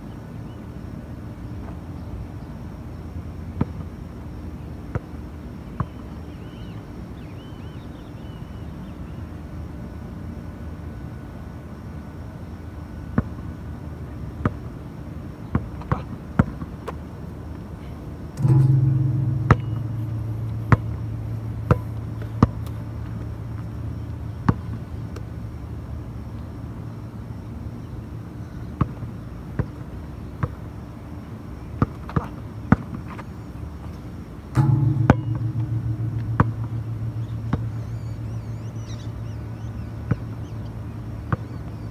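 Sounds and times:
low sustained musical note: 18.4 - 25.1, 34.6 - 41.3.

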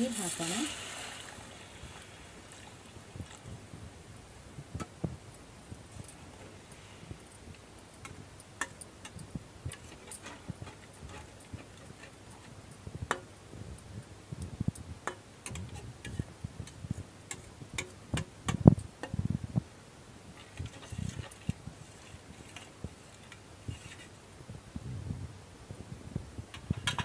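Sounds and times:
metal spatula tapping a pan: 13.1 - 13.3, 15.0 - 16.2, 17.3 - 19.2.

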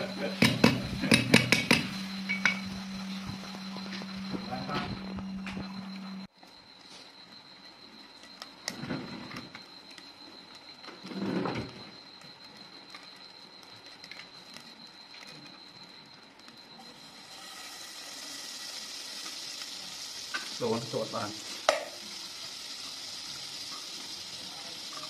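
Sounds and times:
margarine sizzling in hot pot: 16.7 - 25.0.

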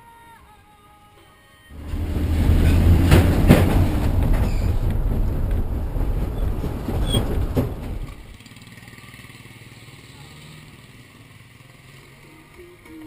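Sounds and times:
rattling: 1.8 - 8.4
sharp knocks: 1.8 - 8.4
engine and road rumble: 1.8 - 13.0.

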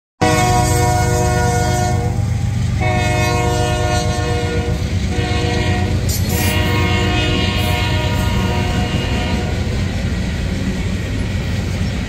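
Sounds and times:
train air horn blasts: 0.2 - 9.7
train cars rumbling on rails: 0.2 - 12.0.

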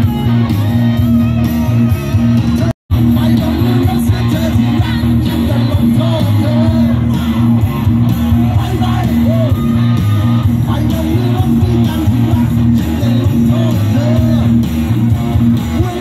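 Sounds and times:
bass guitar: 0.0 - 16.0
electric guitar: 0.0 - 16.0
rock band playing live: 0.0 - 16.0
person singing: 2.5 - 14.7, 15.6 - 16.0.

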